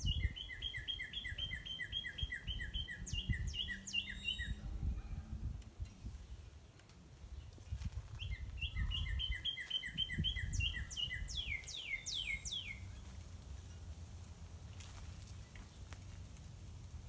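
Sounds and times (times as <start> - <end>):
bird singing: 0.0 - 4.8, 8.2 - 13.1.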